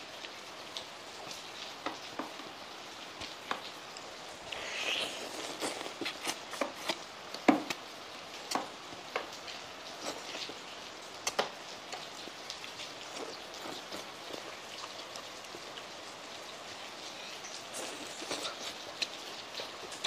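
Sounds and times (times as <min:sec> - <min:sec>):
heavy rain hiss: 0:00.0 - 0:20.0.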